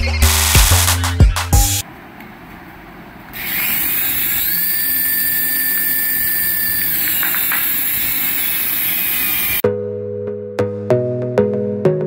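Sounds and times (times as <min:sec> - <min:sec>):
toy helicopter motor whirr: 0:03.4 - 0:09.6.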